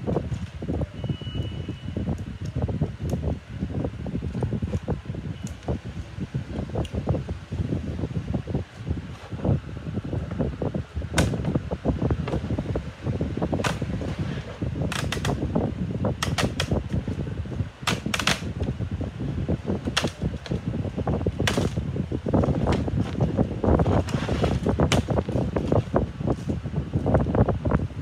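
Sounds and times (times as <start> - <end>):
sharp plastic clicks and snaps: 14.8 - 15.4, 16.2 - 17.0, 17.8 - 18.6, 19.8 - 20.6.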